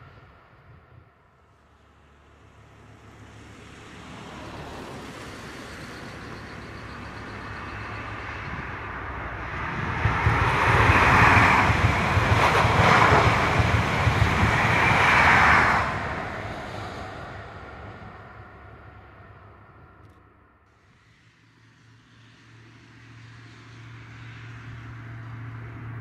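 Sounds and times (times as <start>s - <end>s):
train passing at speed: 0.0s - 26.0s.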